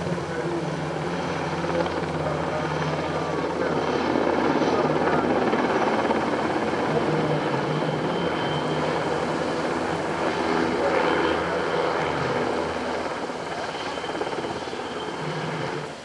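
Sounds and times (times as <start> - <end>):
helicopter flying overhead: 0.0 - 16.0.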